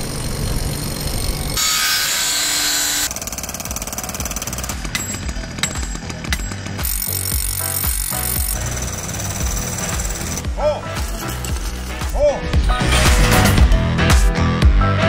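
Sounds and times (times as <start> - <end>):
power tool running: 0.0 - 13.7
metal clinks and knocks: 3.1 - 12.4
steel stake driven into gravel: 3.1 - 13.6.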